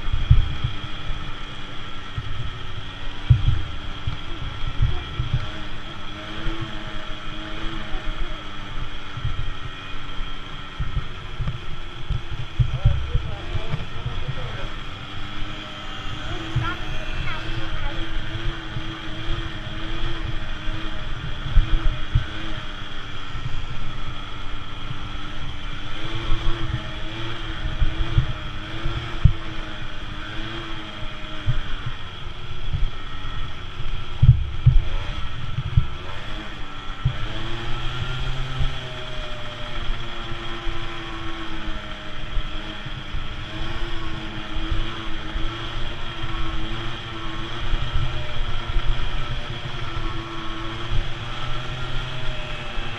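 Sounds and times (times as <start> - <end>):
wind buffeting and thumps: 0.0 - 1.3, 2.0 - 5.8, 9.1 - 15.2, 31.4 - 36.0
dirt bike engine revving: 0.0 - 52.9.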